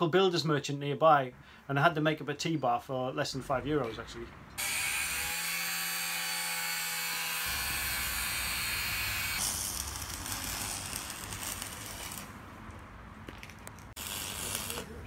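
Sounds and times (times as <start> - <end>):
angle grinder cutting steel: 4.6 - 12.4, 14.0 - 15.0
electric arc welder sizzling: 4.6 - 12.4, 14.0 - 15.0.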